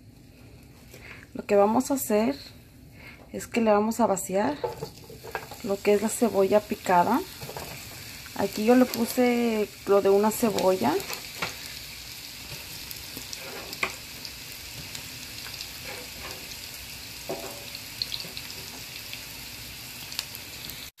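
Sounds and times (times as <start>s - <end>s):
onion sizzling in oil: 4.2s - 21.0s.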